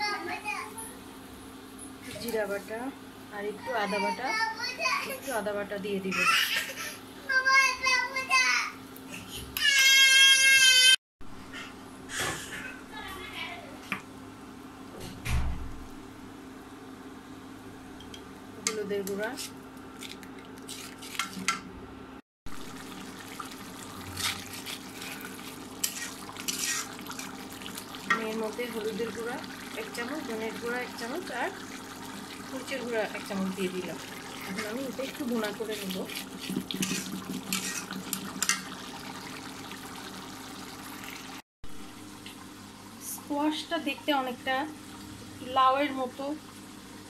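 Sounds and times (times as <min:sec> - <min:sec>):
light wet sizzle: 0:00.0 - 0:10.4, 0:11.5 - 0:21.7, 0:22.5 - 0:47.0
paste sizzling and bubbling: 0:22.5 - 0:43.0
spatula scraping a pan: 0:24.1 - 0:27.4, 0:35.4 - 0:38.6.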